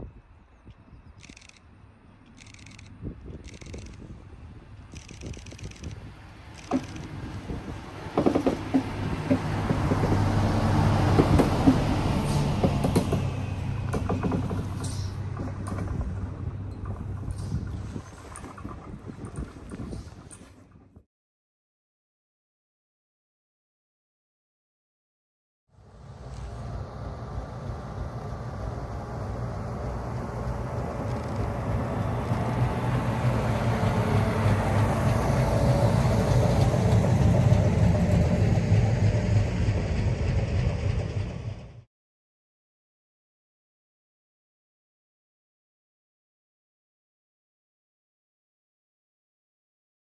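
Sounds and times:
railcar running hum: 0:00.0 - 0:20.8, 0:25.8 - 0:41.9
wheels clicking on rails: 0:04.9 - 0:20.8.

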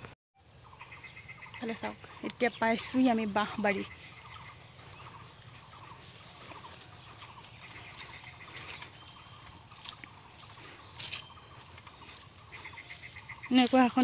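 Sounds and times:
rapidly pulsed animal calls: 0:03.8 - 0:13.7.

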